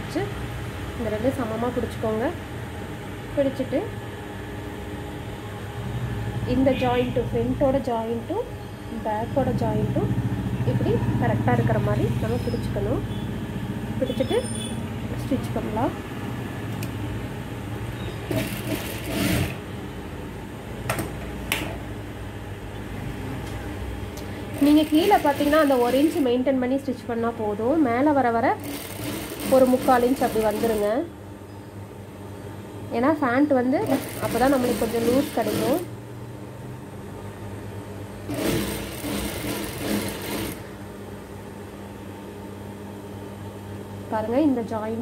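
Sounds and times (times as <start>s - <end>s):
sewing machine running: 18.2s - 19.6s, 24.5s - 26.3s, 28.5s - 31.0s, 33.8s - 35.9s, 38.3s - 40.7s.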